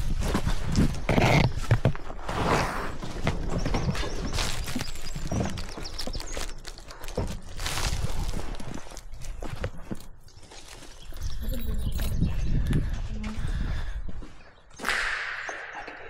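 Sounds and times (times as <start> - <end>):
clothing scraping: 0.0 - 10.0
leaves rustling: 2.2 - 11.4.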